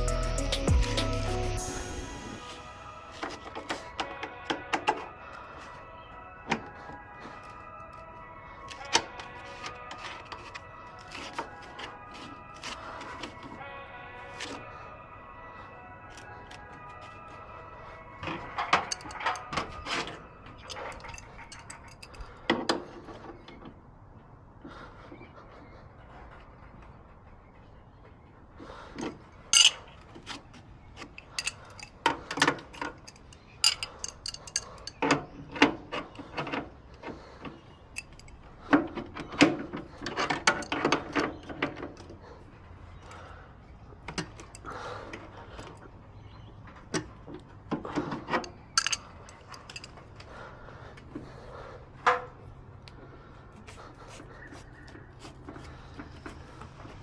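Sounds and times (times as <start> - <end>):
wrench clinking on metal valves: 18.6 - 19.5, 20.6 - 22.3, 29.5 - 29.8, 31.1 - 35.2, 48.4 - 50.0.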